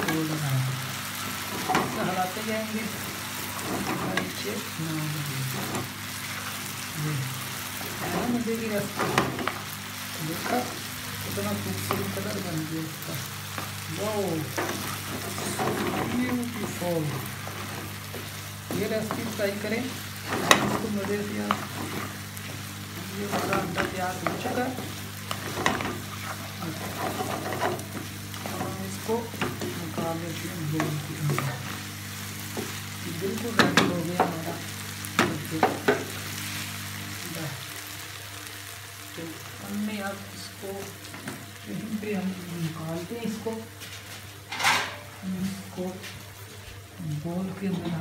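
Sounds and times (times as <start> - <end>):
potatoes and egg sizzling in pan: 0.0 - 48.0
spatula knocking and scraping pan: 23.3 - 28.7.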